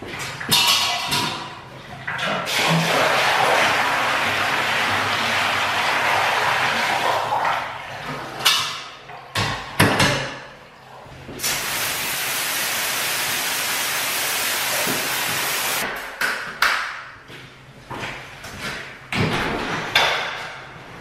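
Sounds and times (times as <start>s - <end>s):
water draining from bucket: 2.0s - 8.5s
hose spraying on concrete: 11.4s - 15.8s.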